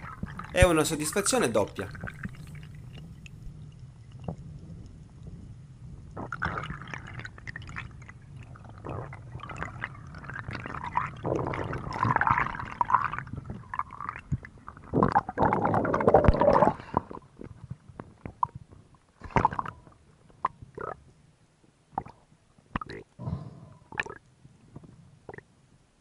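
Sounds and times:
small water splashes: 0.0 - 3.4
underwater bubbling: 0.0 - 21.1, 21.9 - 25.5.

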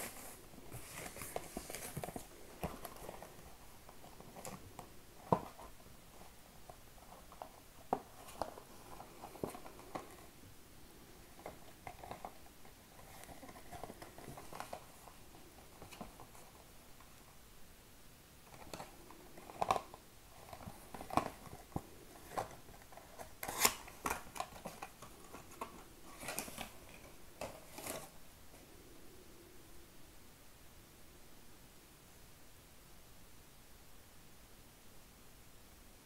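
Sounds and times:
hands handling cardboard box: 0.0 - 10.3, 11.3 - 17.3, 18.5 - 28.2.

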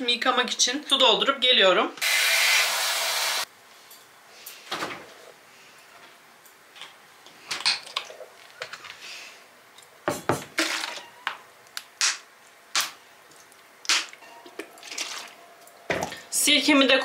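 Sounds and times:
water sloshing: 14.6 - 16.3.

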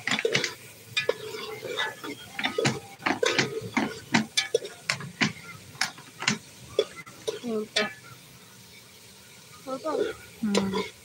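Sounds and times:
spoon scraping metal pot: 0.0 - 6.4, 9.9 - 11.0.

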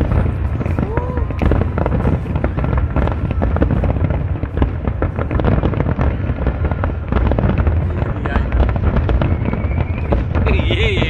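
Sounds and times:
deep rumble: 0.0 - 11.0
fireworks bangs and crackles: 0.0 - 11.0.

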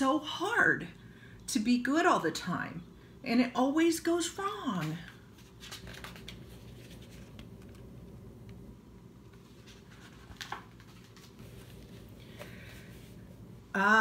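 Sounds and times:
low room hum: 0.0 - 14.0
book pages rustling: 4.7 - 8.6, 9.2 - 13.5.

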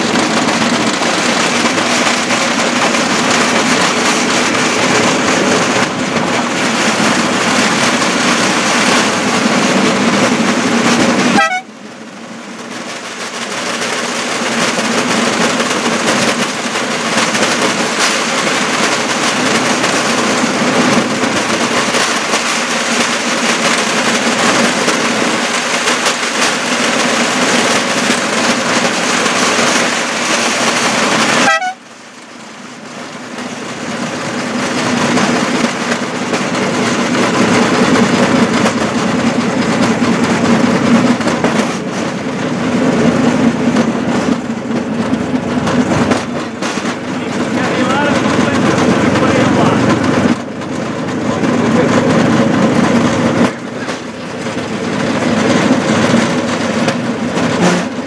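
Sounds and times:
rail vehicle droning on rails: 0.0 - 58.0.

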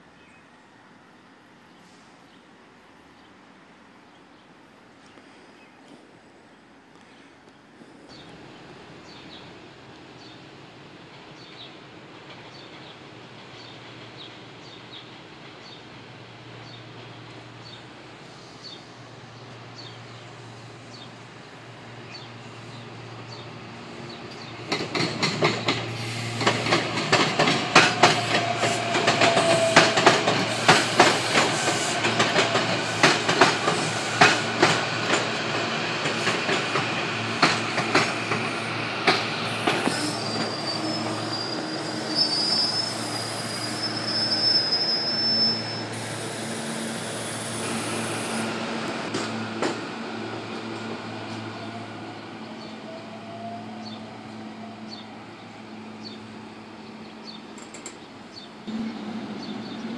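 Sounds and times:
train wheels clicking over rail joints: 24.3 - 41.2, 47.3 - 51.5
train wheel squeal: 25.7 - 34.7, 38.3 - 48.6.

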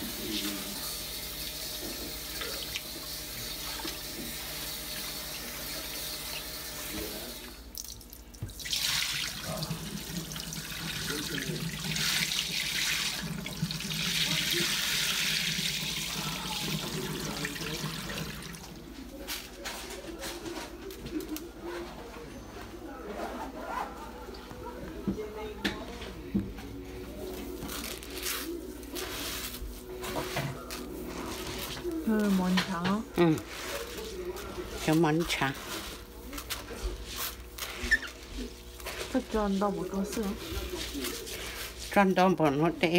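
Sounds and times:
water running and splashing: 0.0 - 18.8
water poured into sink: 7.2 - 18.8.

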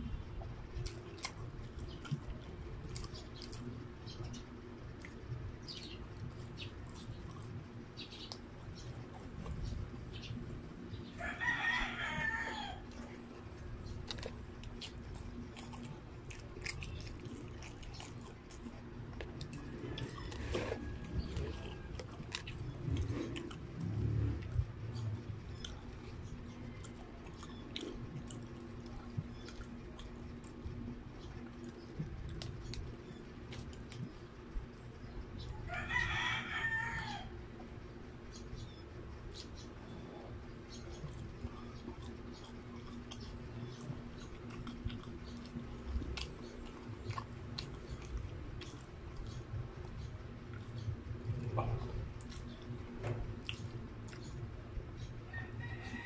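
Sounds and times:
person chewing and smacking: 0.0 - 11.2, 11.8 - 35.5, 38.2 - 55.3
faint clicks of eating: 0.0 - 35.5, 37.7 - 56.0
rooster crowing: 11.1 - 13.0, 20.0 - 22.0, 35.6 - 37.4, 55.3 - 56.0.

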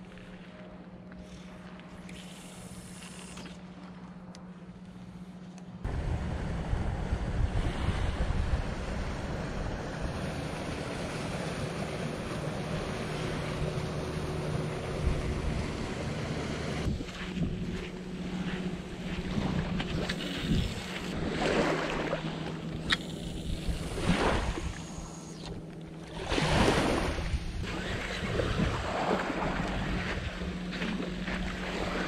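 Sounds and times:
motorboat engine humming: 0.0 - 32.0
wind buffeting microphone: 5.8 - 16.0, 16.8 - 21.4, 26.2 - 31.2.

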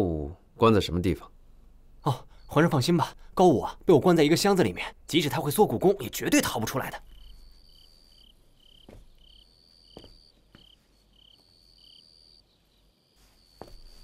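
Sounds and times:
crickets chirping: 1.3 - 14.0
high insect trill: 2.0 - 14.0
faint taps: 13.6 - 13.9.

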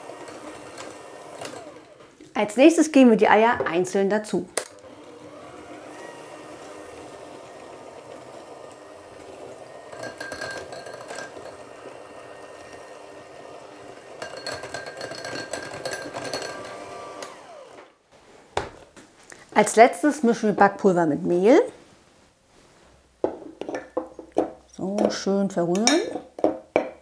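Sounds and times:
mixer beaters rattling: 0.0 - 2.0, 4.7 - 17.8
electric hand mixer whirring: 0.0 - 2.1, 4.6 - 18.0.

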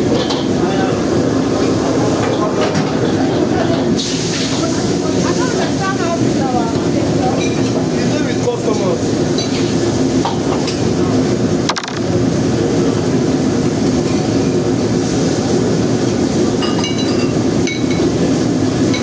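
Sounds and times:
extraction fans roaring: 0.0 - 16.6
stove burners running: 0.0 - 19.0.

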